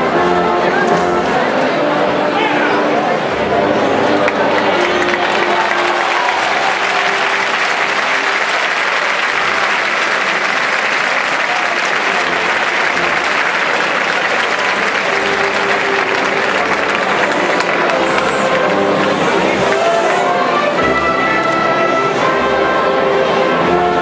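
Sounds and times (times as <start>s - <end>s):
faint voices: 0.0s - 24.0s
large crowd applauding: 4.0s - 21.6s.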